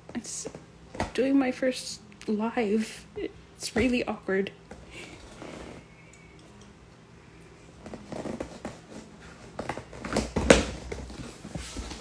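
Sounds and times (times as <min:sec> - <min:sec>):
cardboard scraping: 0:07.8 - 0:12.0.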